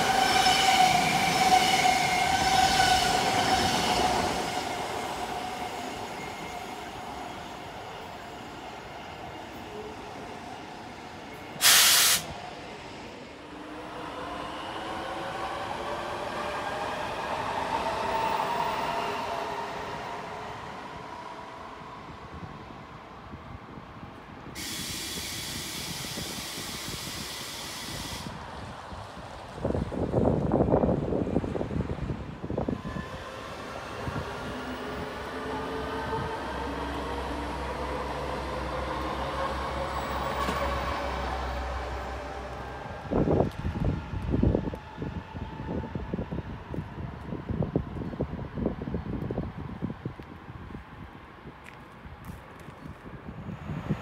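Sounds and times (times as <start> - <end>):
electric train approaching: 0.0 - 23.8, 24.5 - 49.8
loud hiss: 11.6 - 12.4, 24.6 - 28.4
wind gusts on microphone: 13.8 - 54.0.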